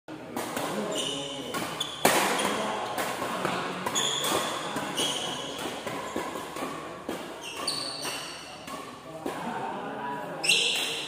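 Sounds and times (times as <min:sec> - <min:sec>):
rackets smacking shuttlecock: 0:00.3 - 0:09.5, 0:10.4 - 0:11.0
shoes squeaking on court: 0:00.6 - 0:08.9, 0:10.4 - 0:11.0.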